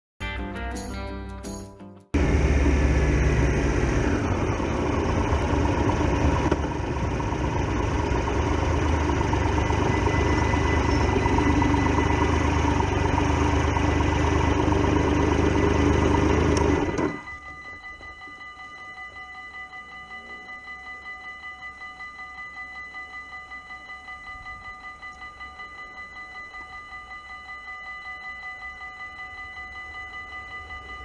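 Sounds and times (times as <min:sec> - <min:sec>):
motorcycle engine idling: 0:02.2 - 0:17.3.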